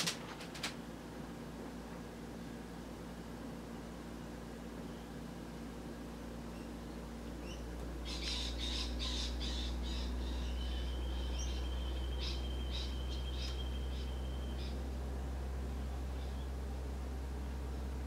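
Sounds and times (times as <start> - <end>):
steady low hum: 0.0 - 18.0
bird squawking: 7.5 - 14.8.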